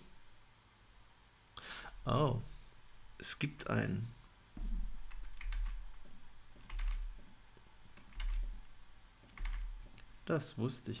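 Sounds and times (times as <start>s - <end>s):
keyboard typing clicks: 5.1s - 6.0s, 6.6s - 7.2s, 8.0s - 10.1s.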